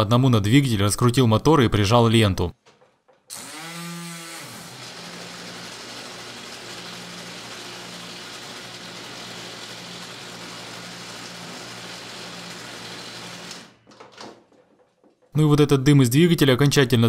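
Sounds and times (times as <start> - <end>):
grinder belt hiss: 4.6 - 13.7.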